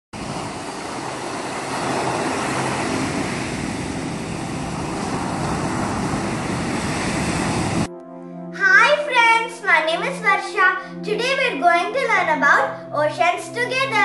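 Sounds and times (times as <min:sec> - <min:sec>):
steady rushing noise: 0:00.2 - 0:07.9.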